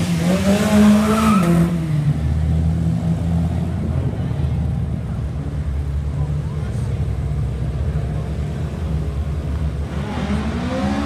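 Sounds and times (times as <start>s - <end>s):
car engines rumbling: 0.0s - 11.0s
voices in background: 3.4s - 9.4s.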